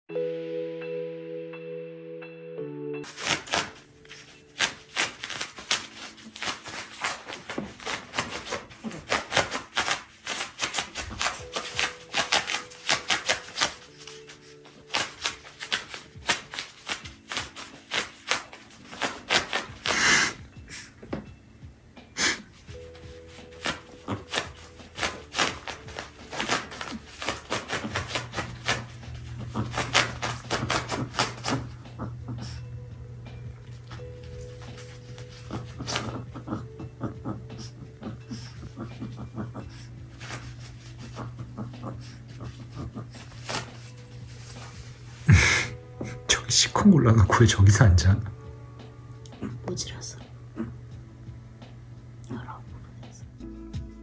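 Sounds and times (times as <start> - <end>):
dog paws scratching fabric mat: 3.0 - 21.3, 22.2 - 45.3.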